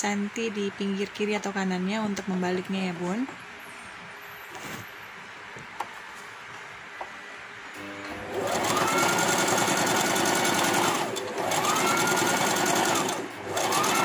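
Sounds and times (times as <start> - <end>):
sewing machine stitching: 8.1 - 14.0.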